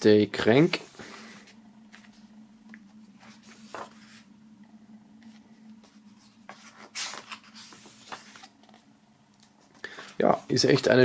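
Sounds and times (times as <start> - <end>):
faint steady hum: 0.0 - 11.0
book pages turning: 1.4 - 4.3, 5.2 - 11.0.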